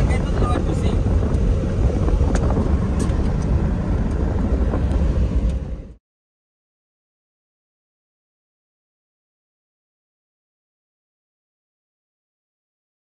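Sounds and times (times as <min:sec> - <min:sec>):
engine and tyres rumbling: 0:00.0 - 0:06.0.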